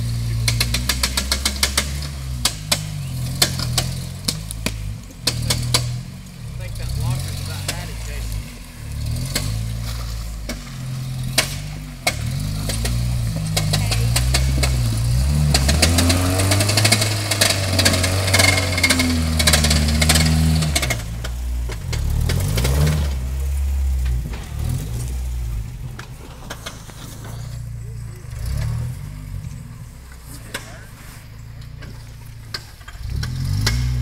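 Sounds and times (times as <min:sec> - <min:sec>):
engine revving: 0:00.0 - 0:34.0
sharp knocks: 0:10.4 - 0:21.1.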